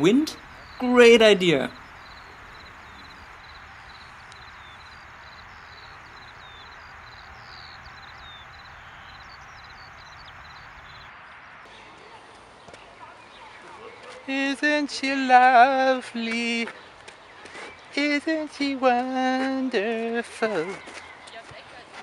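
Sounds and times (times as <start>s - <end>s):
low background hiss: 0.0s - 11.1s
small birds chirping: 0.0s - 11.1s.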